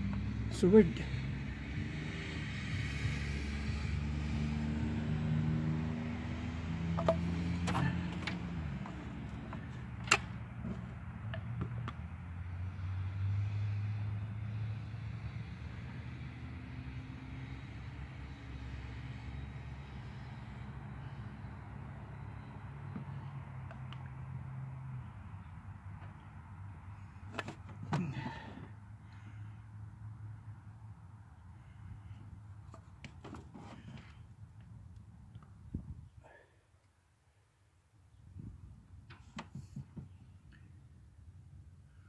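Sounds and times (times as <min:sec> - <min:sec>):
vehicle engine running: 0:05.5 - 0:12.9.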